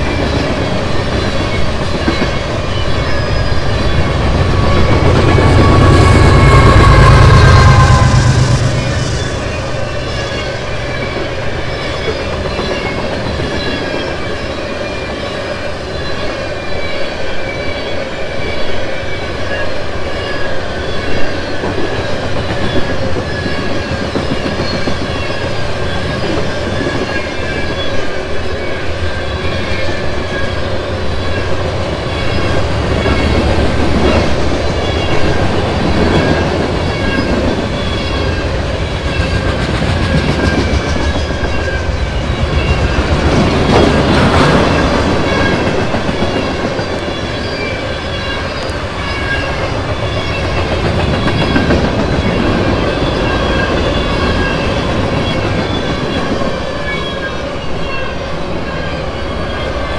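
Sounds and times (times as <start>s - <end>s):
wheels squealing: 0.0s - 18.7s
train wheels rumbling and clacking: 0.0s - 59.9s.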